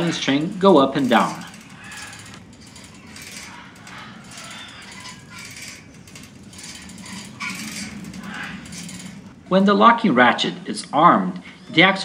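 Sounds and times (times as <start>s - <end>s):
freewheel ratchet ticking: 0.0s - 9.4s
low steady hum: 0.0s - 11.9s.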